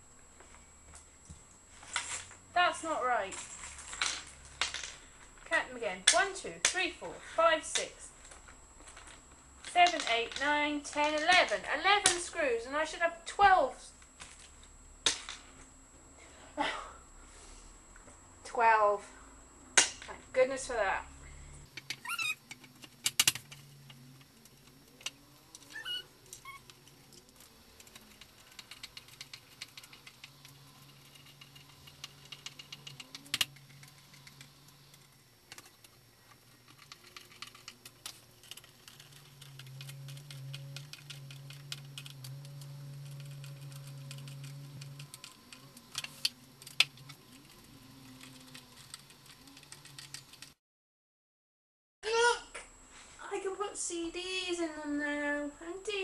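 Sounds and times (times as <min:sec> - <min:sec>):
low steady hum: 0:00.0 - 0:50.6.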